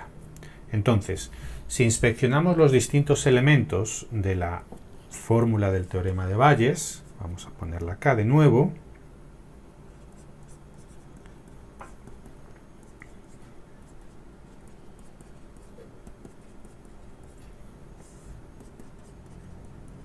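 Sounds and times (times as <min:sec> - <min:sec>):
low steady hum: 0:00.0 - 0:20.0
scratchy writing strokes: 0:09.8 - 0:20.0.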